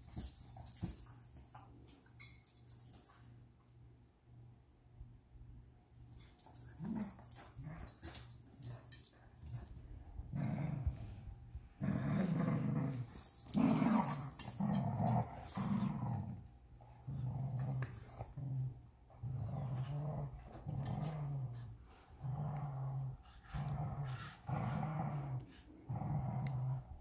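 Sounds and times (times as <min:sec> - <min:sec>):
dogs play-growling: 0:06.2 - 0:27.0.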